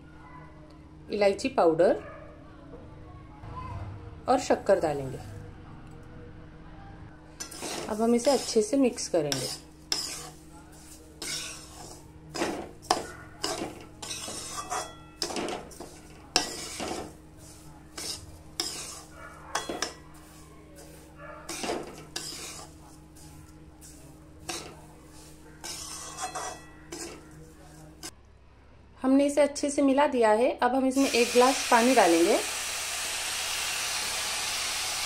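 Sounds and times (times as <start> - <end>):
metal spoon scraping a pan: 7.4 - 28.1.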